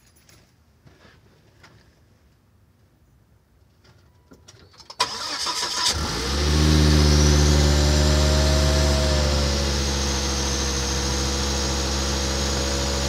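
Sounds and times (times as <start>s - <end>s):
starter motor cranking: 5.0s - 10.0s
car engine idling: 5.0s - 13.0s.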